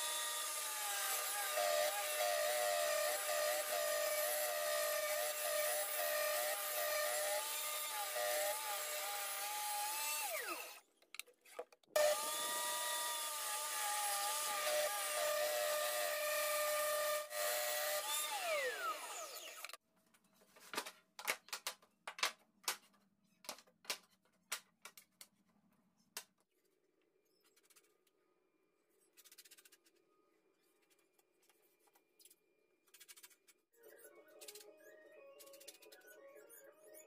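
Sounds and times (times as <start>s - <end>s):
electric saw cutting wood: 0.0s - 10.8s, 12.0s - 19.8s.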